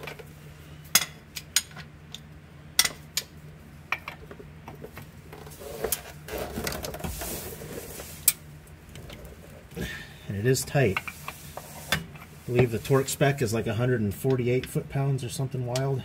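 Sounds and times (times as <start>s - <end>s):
wrench rattling and scraping: 3.9s - 8.4s.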